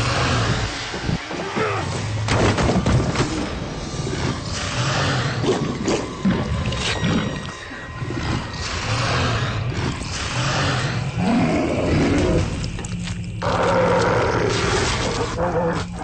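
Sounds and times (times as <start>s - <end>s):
monster roaring and snarling: 3.9s - 12.7s, 13.4s - 16.0s.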